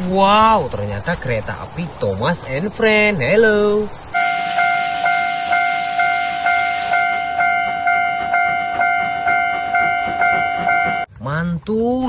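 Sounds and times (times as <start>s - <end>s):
steam hissing: 4.0s - 8.4s
steam locomotive whistle: 4.2s - 11.1s.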